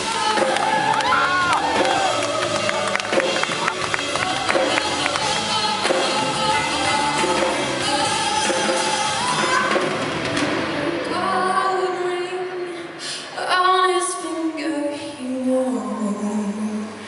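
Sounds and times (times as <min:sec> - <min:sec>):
band accompaniment: 0:00.0 - 0:11.2
woman singing: 0:00.0 - 0:17.0.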